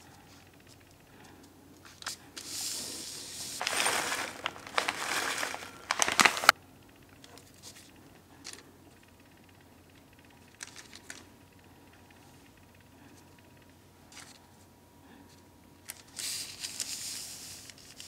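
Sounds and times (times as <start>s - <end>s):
plastic packaging crinkling: 3.5s - 6.6s, 10.6s - 11.2s.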